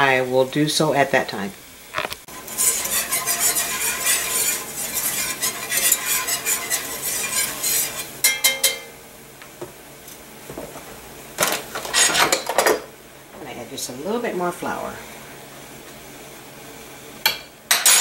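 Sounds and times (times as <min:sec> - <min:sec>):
roux sizzling: 0:00.0 - 0:12.1
whisk scraping a pan: 0:02.2 - 0:08.8, 0:11.9 - 0:12.4
whisk tapping on pan: 0:02.4 - 0:08.9.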